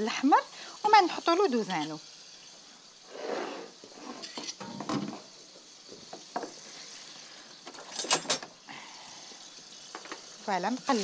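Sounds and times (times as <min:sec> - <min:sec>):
meat sizzling in butter: 0:00.0 - 0:11.0
utensil scraping pot: 0:03.0 - 0:05.3.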